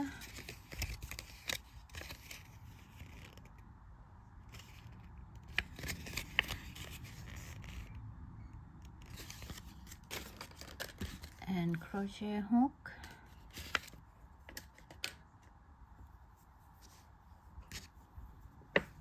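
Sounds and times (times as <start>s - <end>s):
paper label rustling: 0.2s - 3.7s, 4.4s - 7.9s, 8.8s - 11.4s
small clicks and scrapes: 0.2s - 3.7s, 4.4s - 8.0s, 8.7s - 11.4s, 13.0s - 15.6s.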